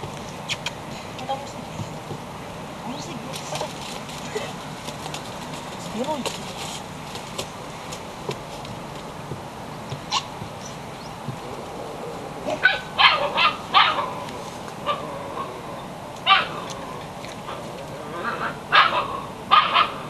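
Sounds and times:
puppy yipping: 10.1 - 10.3, 12.6 - 14.1.

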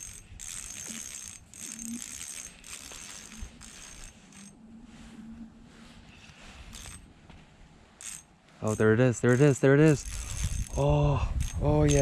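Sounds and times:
fishing reel drag clicking: 0.0 - 4.6, 6.7 - 7.0, 8.0 - 12.0.

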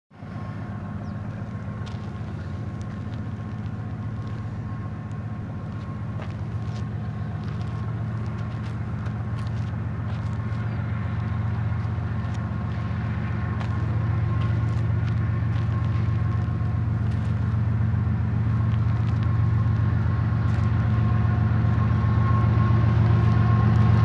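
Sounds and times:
distant diesel locomotives humming: 0.1 - 24.0.

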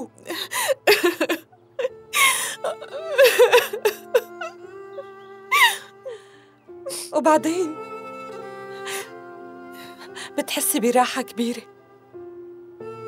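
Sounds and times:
background music with held notes: 0.0 - 13.0
woman crying: 0.2 - 7.9, 8.7 - 9.2.

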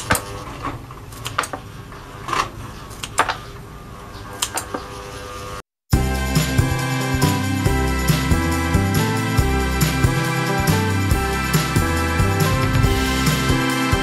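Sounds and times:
background music: 5.9 - 14.0.

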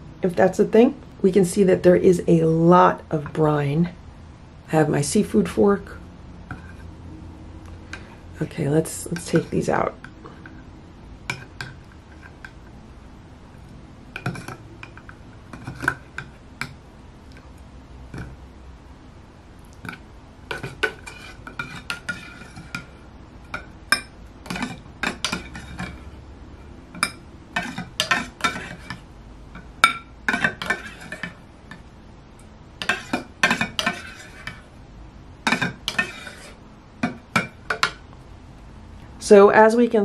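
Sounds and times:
metal fork scraping tin can: 20.5 - 22.8, 30.3 - 31.4, 32.8 - 34.7, 35.5 - 36.6.

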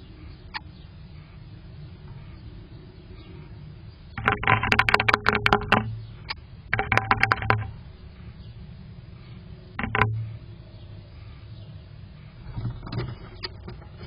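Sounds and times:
bird clicking and scraping on box: 4.2 - 7.8, 9.8 - 10.3.

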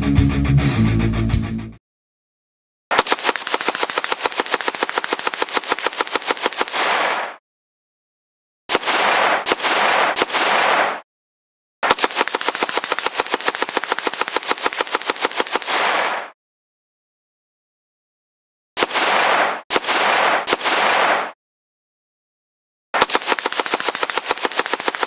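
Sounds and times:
assault rifle automatic fire: 2.9 - 7.4, 8.7 - 11.0, 11.8 - 16.4, 18.8 - 21.4, 23.0 - 25.0.

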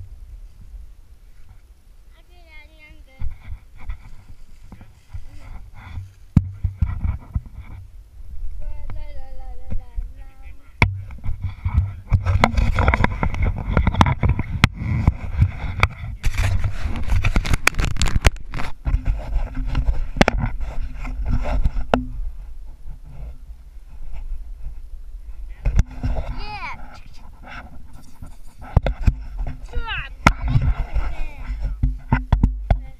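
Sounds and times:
camera rubbing and scraping: 2.8 - 7.9, 8.8 - 32.9
sharp knocks: 5.9 - 7.7, 10.8 - 15.9.

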